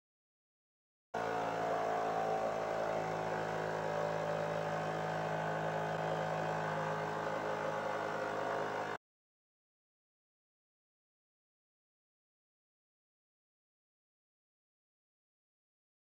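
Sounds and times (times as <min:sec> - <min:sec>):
engine and fan mechanical hum: 0:01.2 - 0:09.0.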